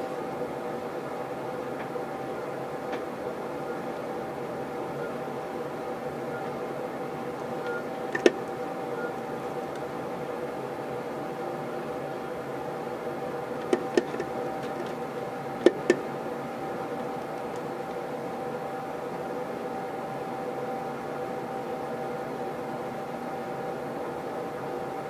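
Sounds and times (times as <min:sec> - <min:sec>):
air-conditioning blower: 0:00.0 - 0:25.0.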